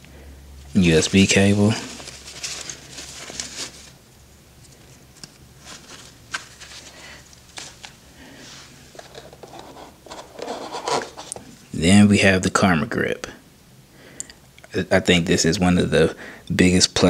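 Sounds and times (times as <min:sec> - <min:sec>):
faint low hum: 0:00.0 - 0:17.0
fabric rustling: 0:00.8 - 0:04.0, 0:05.6 - 0:09.9.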